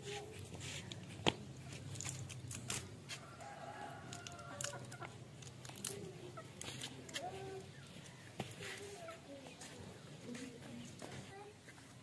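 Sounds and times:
small clicks and rustles: 0.5 - 3.3, 4.0 - 8.9
chickens clucking: 3.2 - 10.4.

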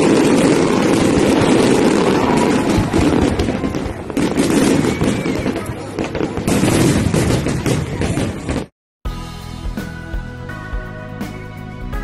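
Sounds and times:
fireworks bursting and crackling: 0.0 - 8.7
music: 9.0 - 12.0.

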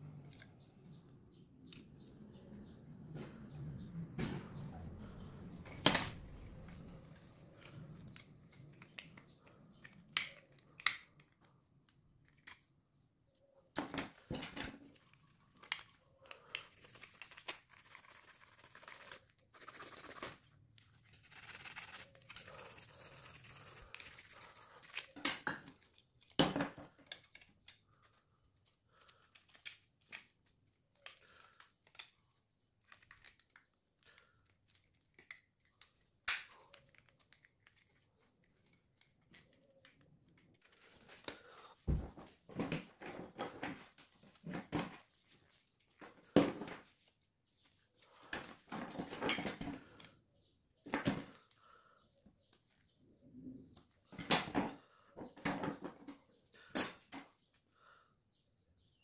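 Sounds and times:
plastic parts clicking and knocking: 0.1 - 18.4, 20.2 - 51.7, 53.8 - 57.4.

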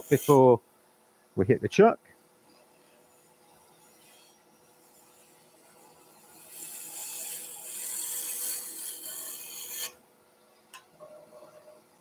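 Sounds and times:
gouge cutting wood on a lathe: 0.0 - 0.5, 3.7 - 10.0
faint steady hum: 0.0 - 12.0.

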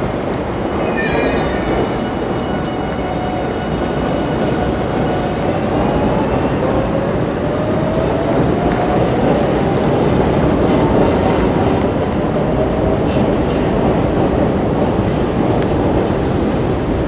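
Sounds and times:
freight train rumbling on rails: 0.0 - 17.0
faint thin squealing tones: 0.7 - 3.5.

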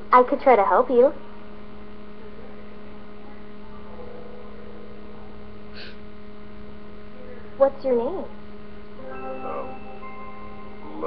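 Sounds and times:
electrical mains hum: 0.0 - 11.0
faint hiss: 1.2 - 11.0.

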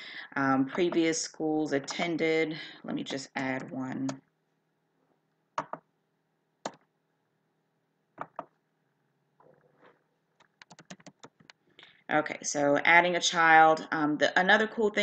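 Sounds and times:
computer keyboard keystrokes: 10.4 - 11.6.

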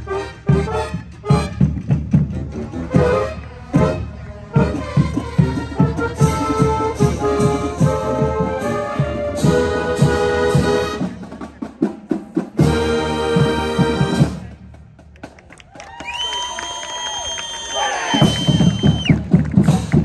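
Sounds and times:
brass chords: 0.0 - 14.6
marching band playing: 0.0 - 15.8, 17.3 - 20.0
steady drum beat: 4.6 - 15.6, 18.1 - 20.0.

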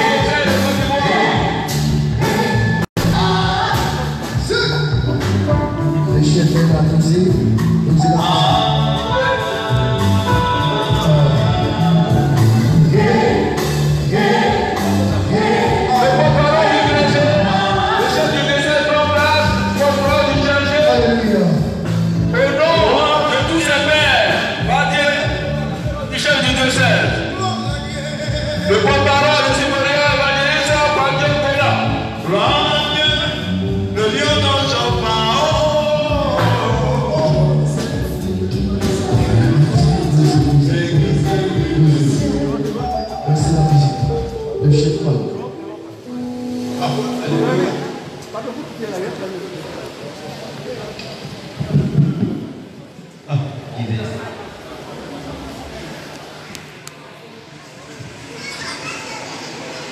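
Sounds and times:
group singing a hymn: 0.0 - 4.9, 8.0 - 19.2, 34.2 - 43.7
low instrumental beat: 0.0 - 18.4, 19.1 - 48.0.

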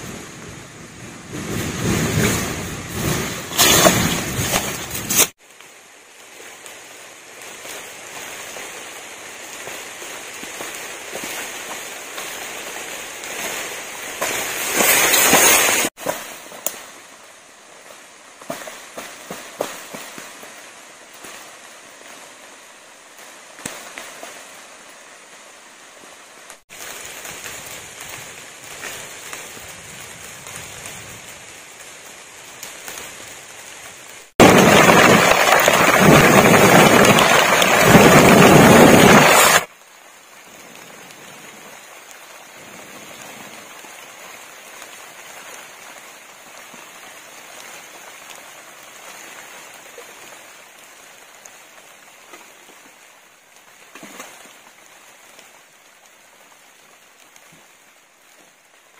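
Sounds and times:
heavy rain on plants: 0.0 - 58.9
outdoor noise with light crackles: 0.0 - 58.9.

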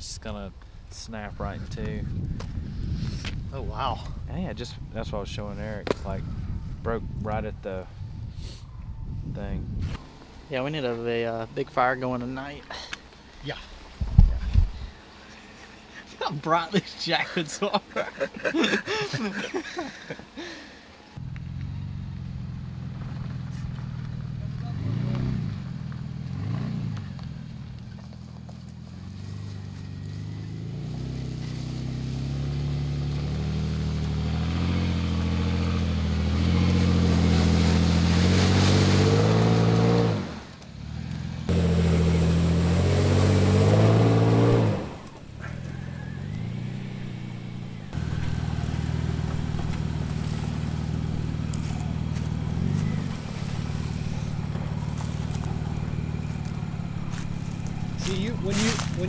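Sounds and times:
truck engine at low speed: 21.0 - 59.0.

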